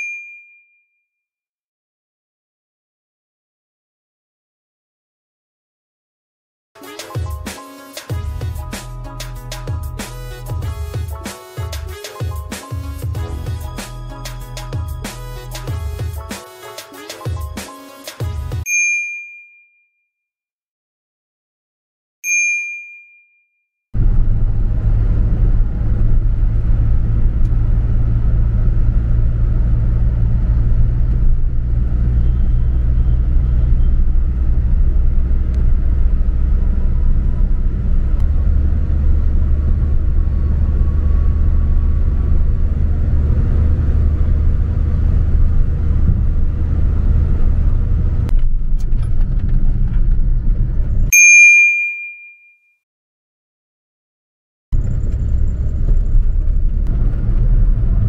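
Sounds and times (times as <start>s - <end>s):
bell-like ding: 0.0s - 1.0s, 18.7s - 19.9s, 22.3s - 23.4s, 51.2s - 52.7s
car cabin road rumble: 24.0s - 51.1s, 54.8s - 58.0s.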